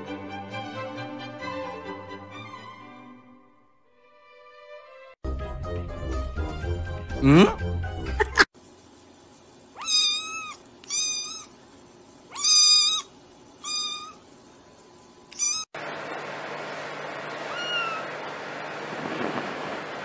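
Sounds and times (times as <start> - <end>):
kitten meowing: 9.8 - 11.6, 12.3 - 14.2, 15.3 - 15.7, 17.5 - 18.1.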